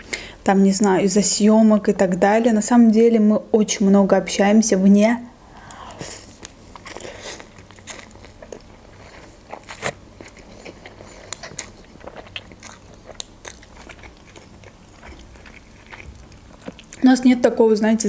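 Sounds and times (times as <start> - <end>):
chewing: 5.7 - 17.0.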